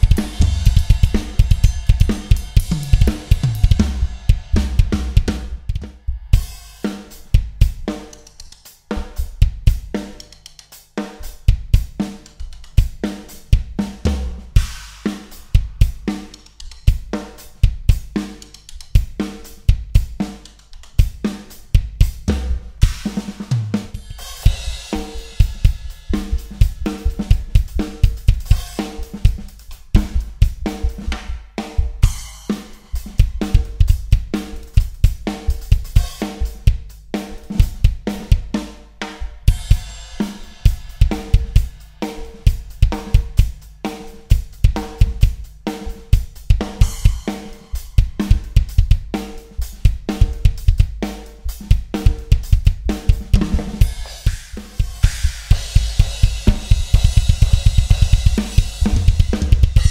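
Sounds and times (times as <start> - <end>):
snare drum beat: 0.0 - 5.5, 41.0 - 59.9
rapid bass drum strokes: 0.0 - 59.9
cymbal crashes: 53.8 - 59.9.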